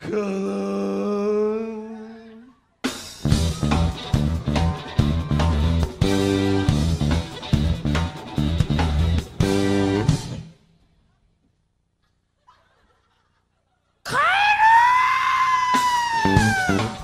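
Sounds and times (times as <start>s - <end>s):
live rock band: 2.8s - 10.5s, 15.7s - 17.0s
long high scream: 14.1s - 17.0s.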